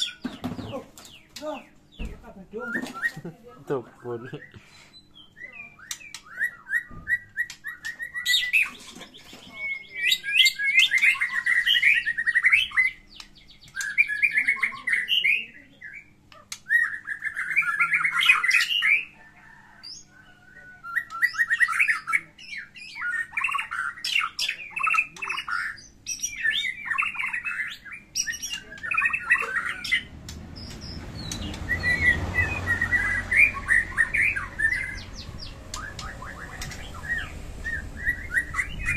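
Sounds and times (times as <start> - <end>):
songbird singing: 0.0 - 38.9
low rumble: 30.0 - 38.9.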